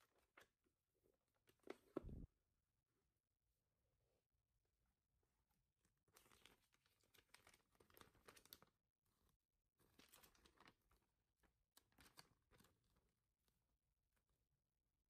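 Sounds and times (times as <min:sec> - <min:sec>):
paper rustling and crinkling: 0:06.1 - 0:08.7, 0:09.8 - 0:11.1, 0:11.8 - 0:13.1.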